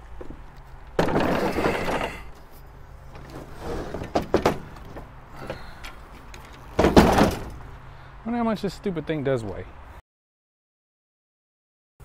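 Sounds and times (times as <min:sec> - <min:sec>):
mower scraping on plastic bed liner: 0:03.1 - 0:04.6
mower knocking against truck bed: 0:04.0 - 0:05.6, 0:06.8 - 0:07.6.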